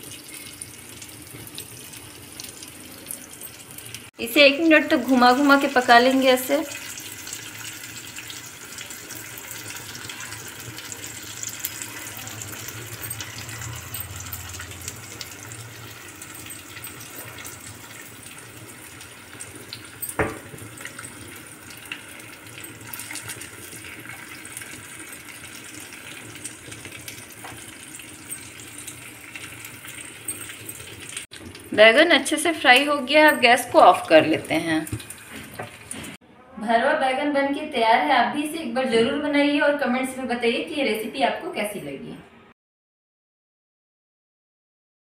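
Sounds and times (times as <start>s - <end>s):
vegetables sizzling in oil: 0.0s - 36.2s.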